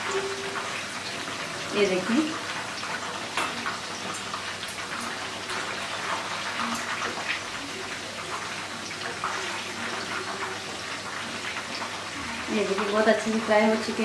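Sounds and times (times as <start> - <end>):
chicken frying in hot oil: 0.0 - 14.0.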